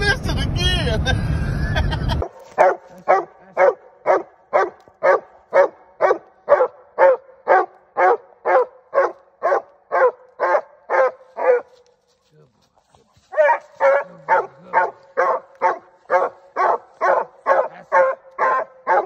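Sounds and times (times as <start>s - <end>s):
dog barking: 2.2s - 11.8s, 13.3s - 19.0s.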